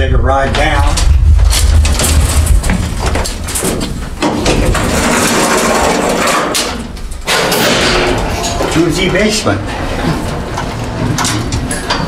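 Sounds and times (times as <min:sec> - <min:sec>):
elevator low rumble: 0:00.0 - 0:05.9
elevator rattling and clatter: 0:00.5 - 0:12.0.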